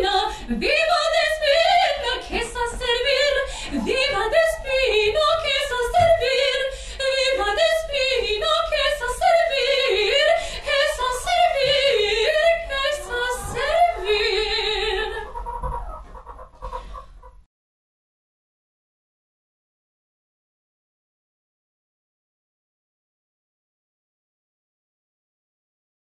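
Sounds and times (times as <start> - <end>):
woman singing opera: 0.0 - 15.3.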